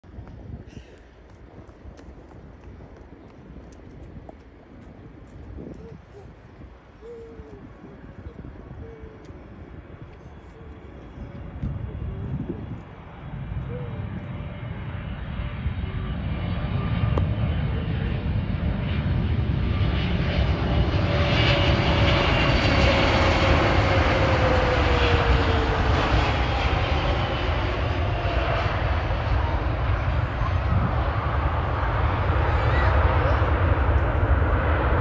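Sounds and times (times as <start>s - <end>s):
jet plane passing overhead: 0.1s - 35.0s.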